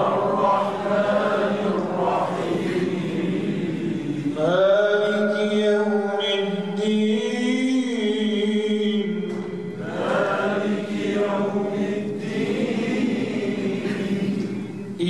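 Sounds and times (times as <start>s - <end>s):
man reciting into a microphone: 4.0s - 9.9s.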